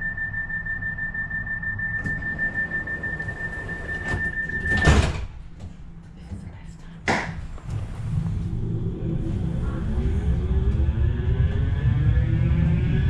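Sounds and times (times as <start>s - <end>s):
tram humming: 0.0s - 4.8s, 7.5s - 13.0s
high-pitched door warning tone: 0.0s - 5.2s
sliding doors shutting with thud: 2.0s - 5.4s.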